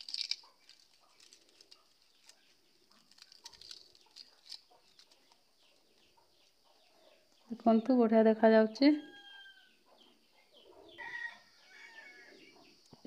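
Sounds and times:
charred leaf crackling and rustling: 0.0 - 7.5.

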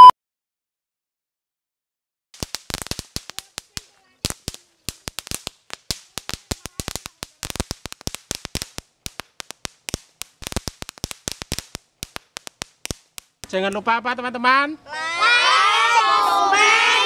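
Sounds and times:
fireworks crackling: 2.4 - 14.5.

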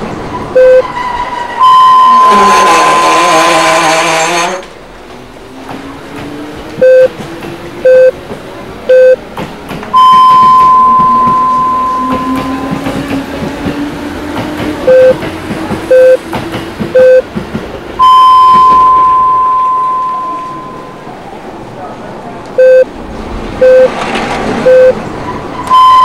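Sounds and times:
electronic beeps: 0.6 - 0.8, 1.6 - 2.4, 6.8 - 7.1, 7.8 - 8.1, 8.9 - 9.2, 10.0 - 12.5, 14.9 - 15.2, 15.9 - 16.2, 17.0 - 17.2, 18.0 - 21.0, 22.6 - 22.9, 23.6 - 23.9, 24.6 - 25.0, 25.7 - 26.0.

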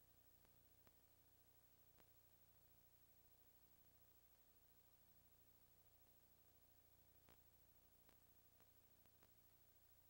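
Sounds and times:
faint steady hiss: 0.0 - 10.0
faint clicks: 1.9 - 2.2, 7.2 - 9.6.

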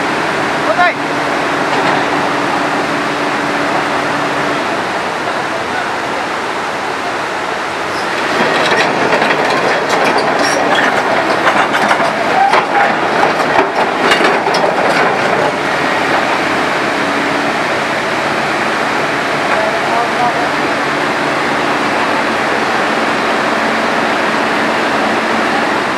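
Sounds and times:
rushing floodwater: 0.0 - 25.9
excavator bucket clanking on rocks: 8.1 - 16.2.

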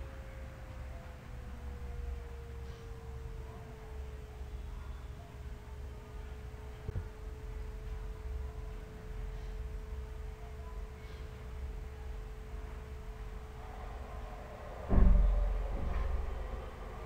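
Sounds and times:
thin steady hum: 0.0 - 17.0.

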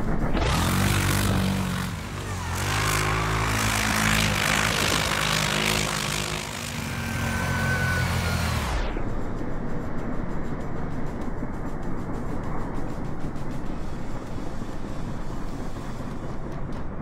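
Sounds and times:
atv engine revving: 0.4 - 8.9.

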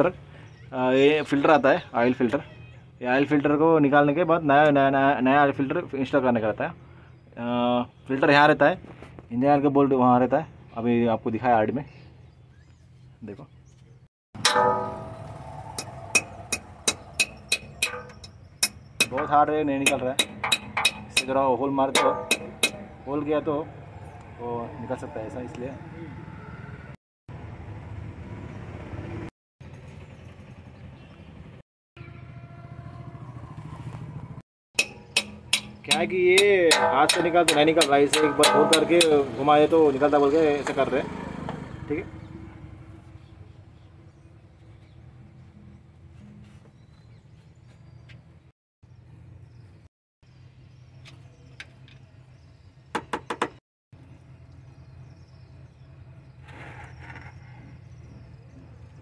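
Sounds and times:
vehicle engine rumbling: 12.1 - 53.2
sharp metallic knocks: 14.4 - 23.1, 34.8 - 39.8
short scrape: 56.4 - 57.7.

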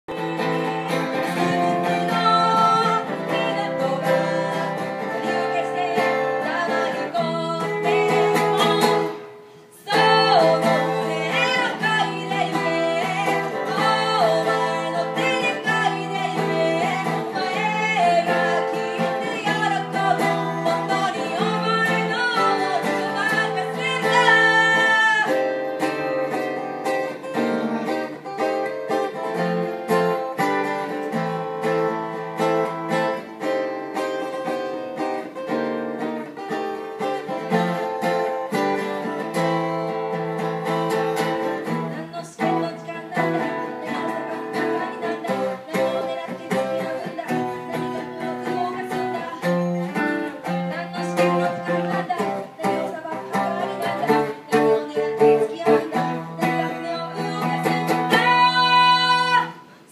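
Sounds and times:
person singing through microphone: 0.0 - 25.6, 41.2 - 59.9
strummed acoustic guitar: 0.1 - 59.9.

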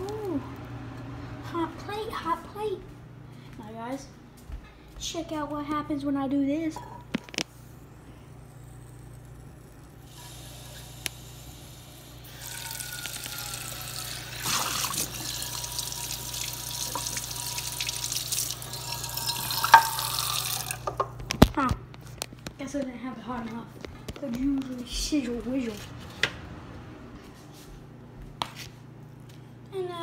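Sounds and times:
tap water splashing into frying pan: 14.4 - 18.6.

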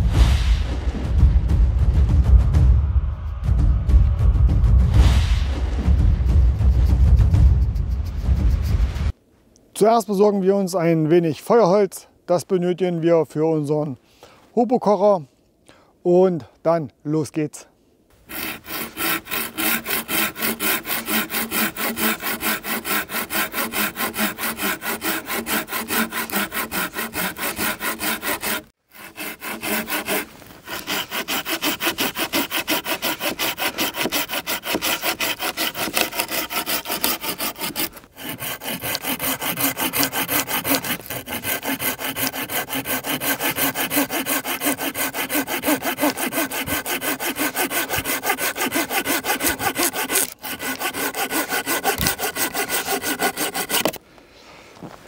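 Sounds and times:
hand saw cutting wood: 18.2 - 54.0.

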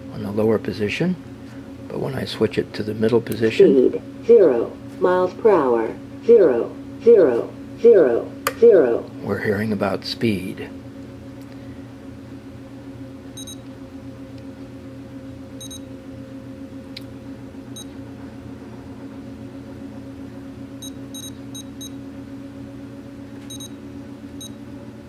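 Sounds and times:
steady low hum: 0.0 - 25.0
short high beeps: 13.4 - 13.6, 15.6 - 15.8, 20.8 - 21.7, 23.5 - 23.7.

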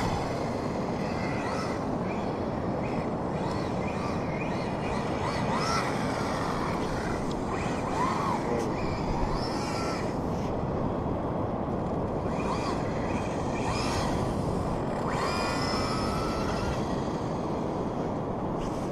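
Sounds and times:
electric motor whine: 0.0 - 18.9
wind rushing on microphone: 0.0 - 18.9.

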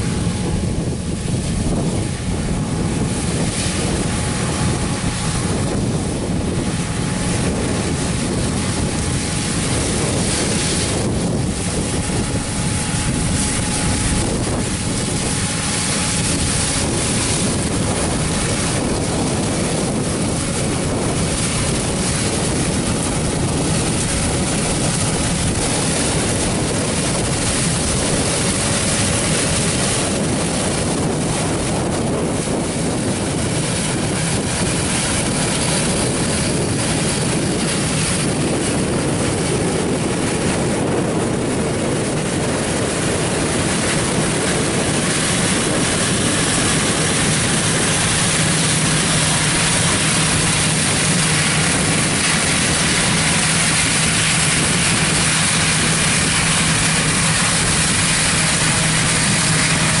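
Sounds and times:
combine engine and threshing machinery: 0.0 - 60.0
low hum: 0.0 - 60.0.

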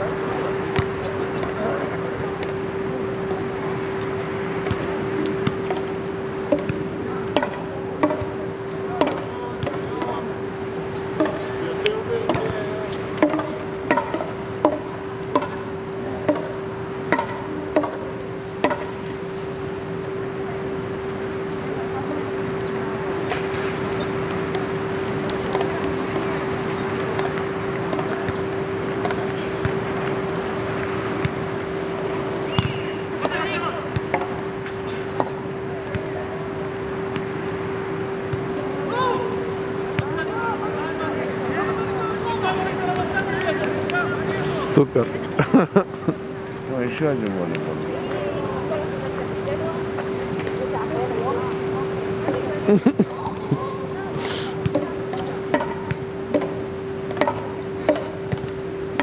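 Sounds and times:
constant low tone: 0.0 - 40.2
constant hum: 0.0 - 59.0
wind: 0.0 - 59.0
sharp knocks: 7.4 - 8.3, 13.2 - 15.6.

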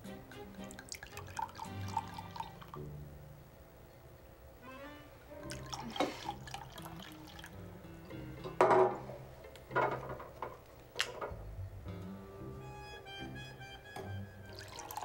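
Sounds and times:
soft background music: 0.0 - 15.0
milk pouring into a glass: 0.6 - 2.8, 5.4 - 7.6, 14.5 - 15.0.

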